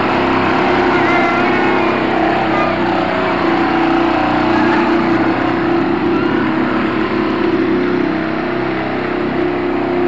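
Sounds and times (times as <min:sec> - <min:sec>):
small boat engine droning: 0:00.0 - 0:10.0.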